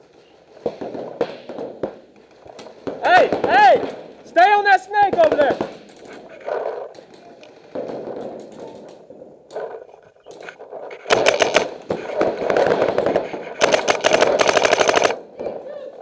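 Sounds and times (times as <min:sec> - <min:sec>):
paintball markers firing: 0:05.1 - 0:15.6.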